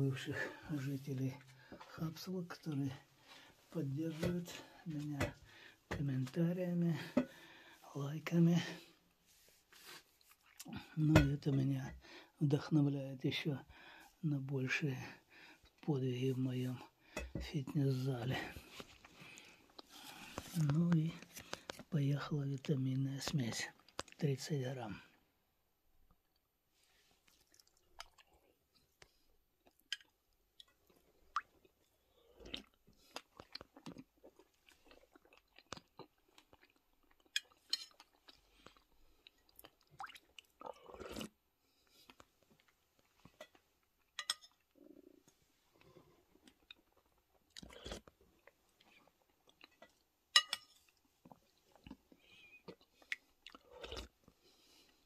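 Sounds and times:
close chewing: 27.2s - 44.1s, 45.8s - 50.0s, 50.9s - 55.0s
tableware clinking: 44.2s - 44.6s, 50.4s - 50.8s.

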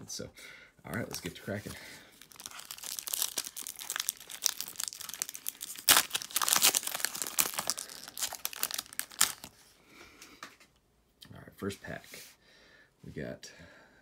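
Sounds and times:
foil wrapper tearing and crinkling: 2.1s - 9.6s.

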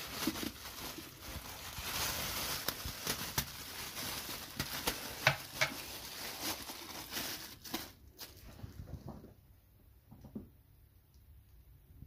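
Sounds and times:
plastic shower cap crinkling: 0.0s - 9.3s.

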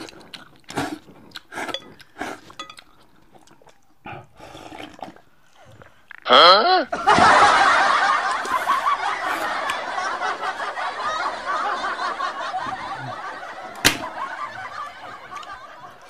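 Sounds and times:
crowd laughing: 6.9s - 16.0s
sharp smack: 13.8s - 14.1s.

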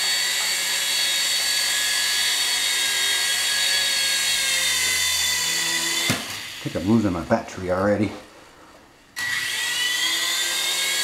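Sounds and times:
toy helicopter motor whine: 0.0s - 6.9s, 9.2s - 11.0s.

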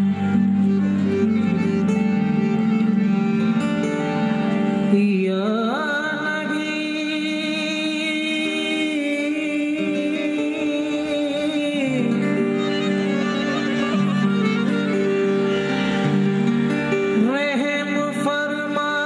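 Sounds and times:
instrumental accompaniment: 0.0s - 19.0s
man singing a long held note: 4.9s - 13.2s, 17.2s - 19.0s.

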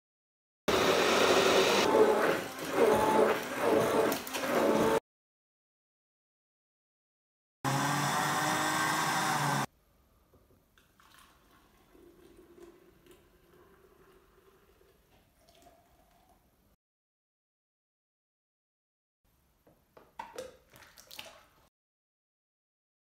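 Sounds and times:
blender whirring: 0.7s - 5.0s, 7.7s - 9.7s
milk trickling into container: 10.8s - 16.5s, 20.2s - 21.6s.

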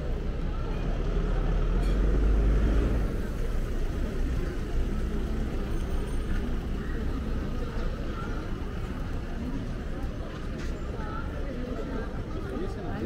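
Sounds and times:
vehicle engine rumble passing: 0.0s - 10.4s
city traffic noise: 0.0s - 13.0s.

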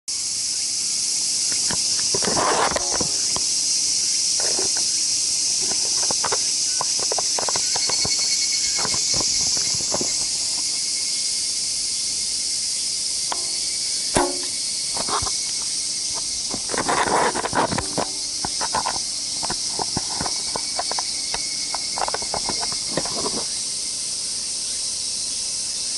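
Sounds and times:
high-pitched insect chorus: 0.1s - 25.9s
crossbow snap: 13.3s - 15.3s.

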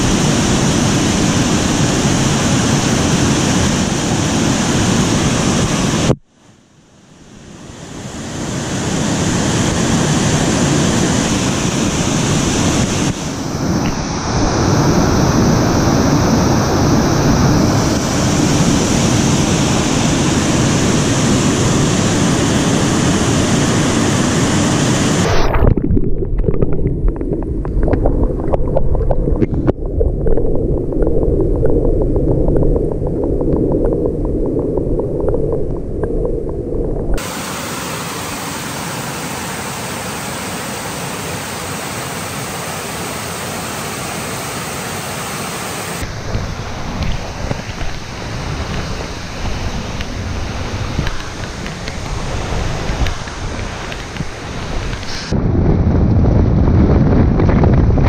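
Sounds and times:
muffled underwater water sound: 10.0s - 58.0s
waterfall pouring into pool: 37.2s - 46.1s.

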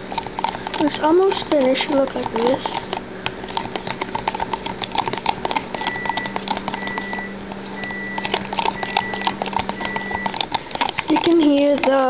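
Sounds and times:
spoon scraping plastic bowl: 0.0s - 12.0s
steady low hum: 0.0s - 12.0s
appliance timer beeps: 5.8s - 10.4s.

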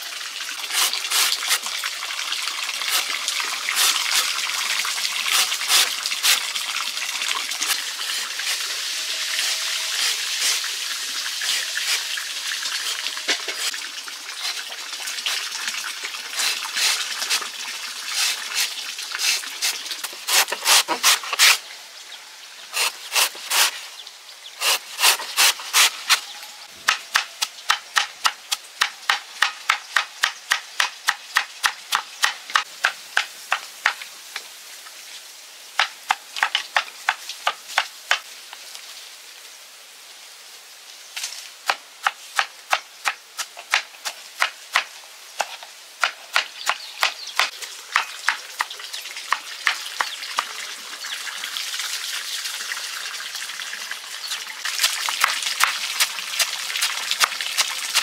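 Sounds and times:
blade chopping: 18.2s - 21.6s, 24.6s - 26.2s.

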